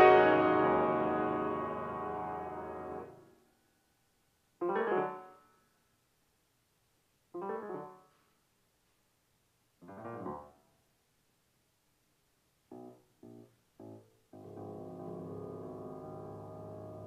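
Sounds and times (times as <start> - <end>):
solo piano playing: 0.0 - 3.2, 12.7 - 17.0.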